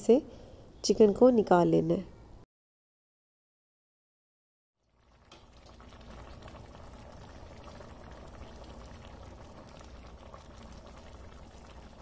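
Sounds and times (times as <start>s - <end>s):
pot bubbling: 4.8s - 12.0s.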